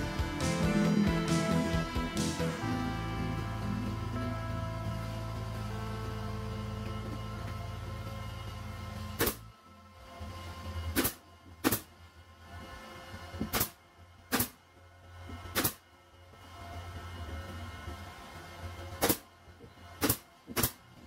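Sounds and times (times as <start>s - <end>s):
brad nailer firing: 9.2s - 9.4s, 10.9s - 11.9s, 13.4s - 14.6s, 15.4s - 15.8s, 19.0s - 19.3s, 20.0s - 20.8s.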